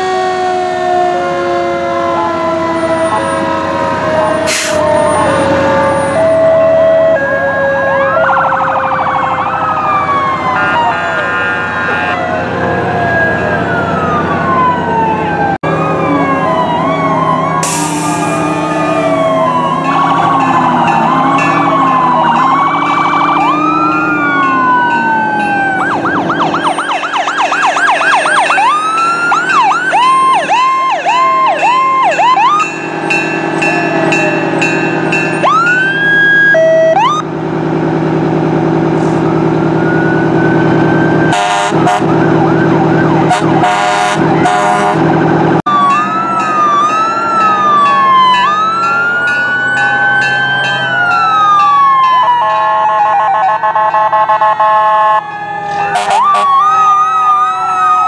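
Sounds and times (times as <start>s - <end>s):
fire truck sirens wailing: 0.0s - 58.0s
steady low drone: 12.2s - 26.7s.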